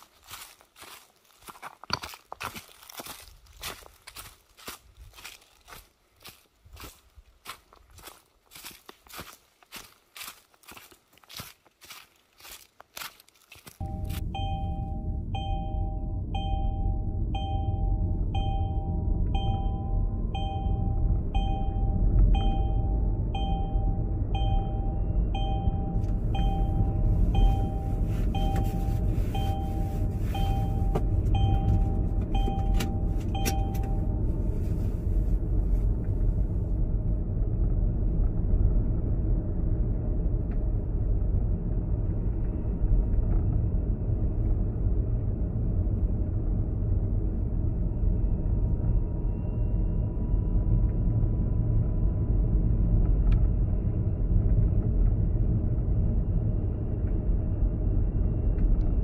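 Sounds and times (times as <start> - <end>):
two-tone warning chime beeping: 13.8 - 34.4
car driving rumble from inside: 13.8 - 59.0.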